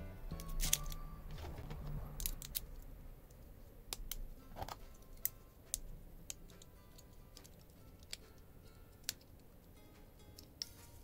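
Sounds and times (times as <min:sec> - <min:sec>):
small metal tools clicking: 0:04.9 - 0:09.8.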